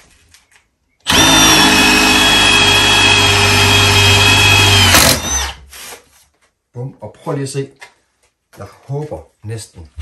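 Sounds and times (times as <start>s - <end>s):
impact driver high whine: 1.1s - 5.6s.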